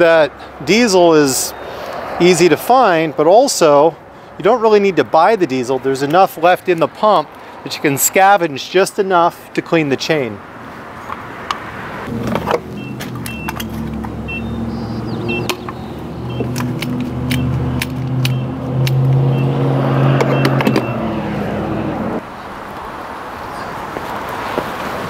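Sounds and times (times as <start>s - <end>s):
short high electronic beeps: 12.8s - 13.6s, 14.3s - 14.6s
nozzle and keypad clicks: 16.3s - 19.0s.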